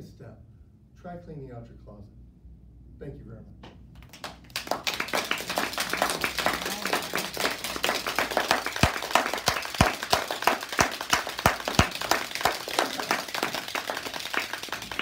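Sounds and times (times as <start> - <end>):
audience clapping: 4.0 - 15.0
loud sharp claps: 4.0 - 15.0.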